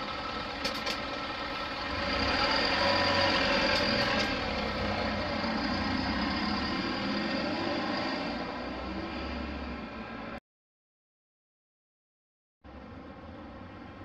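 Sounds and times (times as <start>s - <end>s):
bus diesel engine accelerating: 0.0s - 10.4s.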